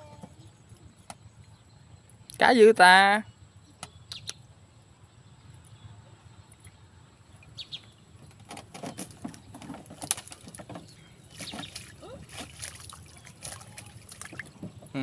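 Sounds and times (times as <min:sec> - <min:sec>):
fish trap rustling and clattering: 0:08.2 - 0:14.9.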